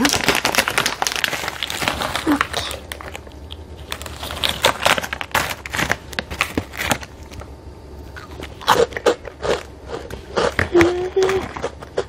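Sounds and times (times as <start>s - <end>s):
snack packet crinkling: 0.0s - 7.5s, 8.1s - 12.0s.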